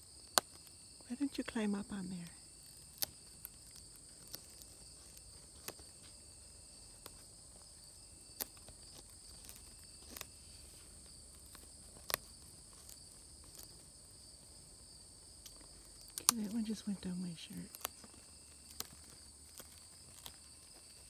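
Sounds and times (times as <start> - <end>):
insect chorus: 0.0 - 21.0
beak cracking branch: 2.6 - 6.2, 8.2 - 10.3, 15.4 - 16.9, 17.7 - 21.0.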